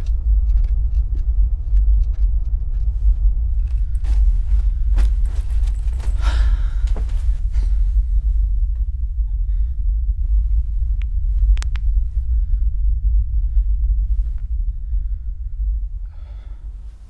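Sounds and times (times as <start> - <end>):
deep low rumble: 0.0 - 17.0
man breathing heavily: 3.4 - 17.0.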